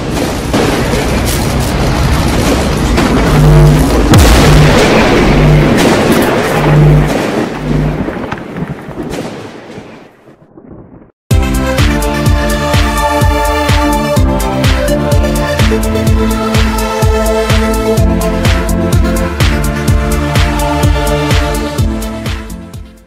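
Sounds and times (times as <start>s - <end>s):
rumbling cinematic boom: 0.4s - 9.2s
low pulsing tones: 2.8s - 8.1s
electronic music with steady beat: 11.3s - 23.0s.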